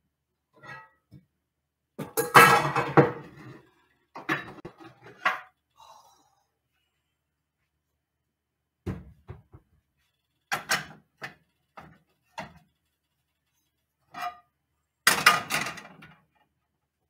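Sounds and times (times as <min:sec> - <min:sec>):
pots and pans clattering: 0:02.0 - 0:05.5, 0:10.5 - 0:12.6, 0:15.1 - 0:16.2.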